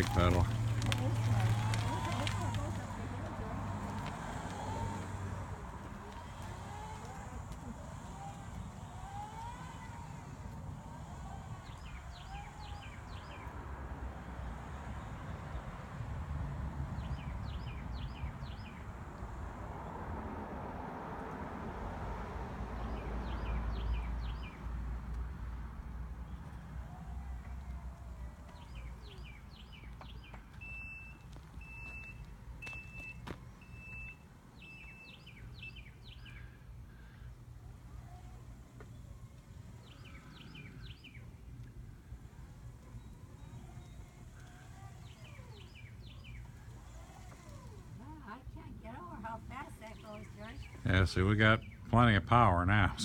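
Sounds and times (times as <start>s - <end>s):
songbird chirping: 0.0s - 20.1s, 26.2s - 53.0s
low outdoor rumble: 0.0s - 30.6s, 35.4s - 53.0s
high warning beeps: 30.6s - 35.2s.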